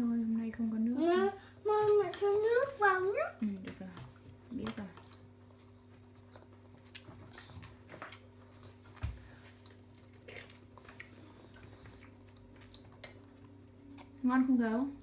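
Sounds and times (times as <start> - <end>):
steady low hum: 0.0 - 15.0
chewing noodles: 5.0 - 14.2.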